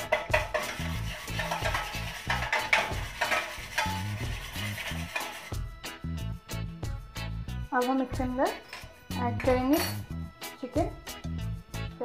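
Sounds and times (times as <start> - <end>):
metal utensil beating in a bowl: 0.0 - 5.6, 8.5 - 10.2
background music with bass: 0.0 - 12.0.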